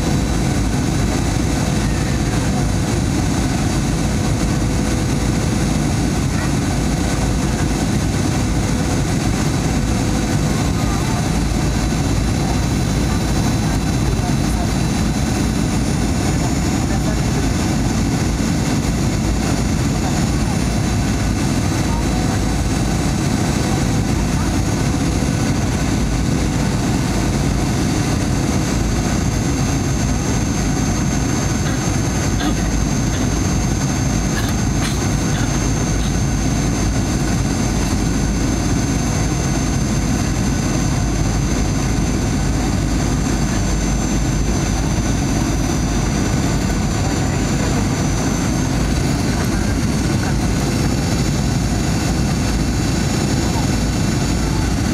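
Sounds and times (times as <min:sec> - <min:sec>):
jet engines droning: 0:00.0 - 0:54.9
high whine: 0:25.5 - 0:54.9.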